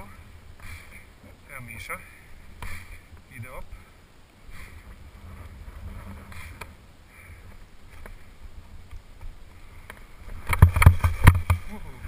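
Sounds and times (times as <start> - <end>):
wind rumbling on microphone: 0.0 - 12.0
skis scraping over snow: 4.5 - 12.0.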